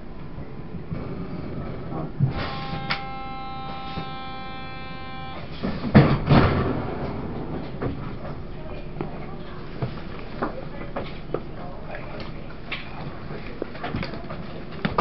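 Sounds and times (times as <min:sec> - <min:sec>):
steady buzzer tone: 0:02.3 - 0:05.6
sliding doors banging shut: 0:05.5 - 0:07.9.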